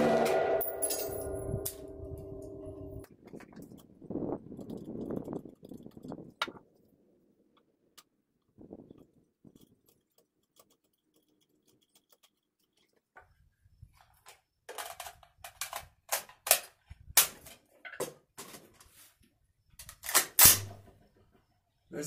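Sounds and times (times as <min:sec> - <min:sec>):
metallic clicks of rifle handling: 0:14.2 - 0:17.6, 0:19.8 - 0:20.8.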